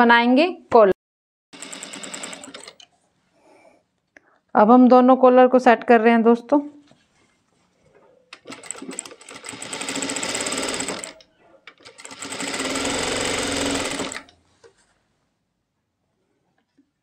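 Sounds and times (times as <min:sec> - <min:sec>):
sewing machine stitching rattle: 0:01.6 - 0:02.8, 0:08.4 - 0:14.3.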